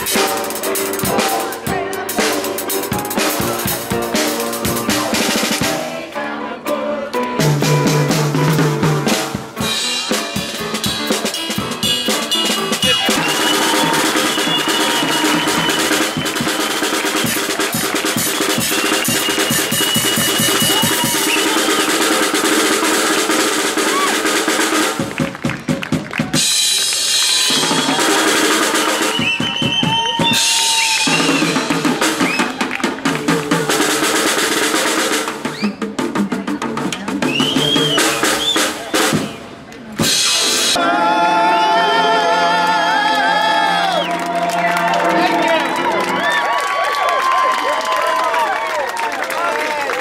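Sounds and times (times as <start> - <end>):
drum kit played fast: 0.0 - 6.1, 7.4 - 40.8.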